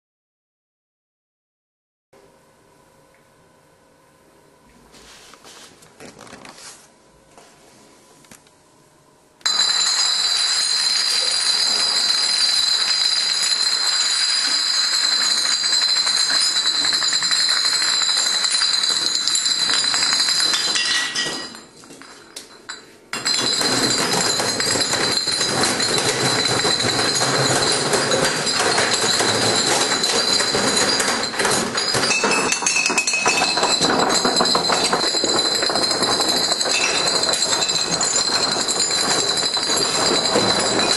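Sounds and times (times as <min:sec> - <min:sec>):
glass bottles toppling and clinking: 0:09.5 - 0:40.9.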